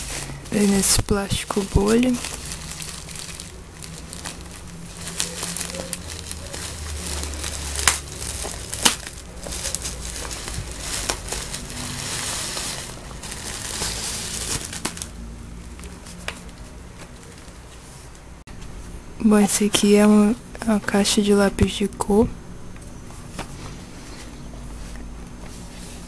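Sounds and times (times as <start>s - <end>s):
bubble wrap crinkling: 0.0s - 18.2s.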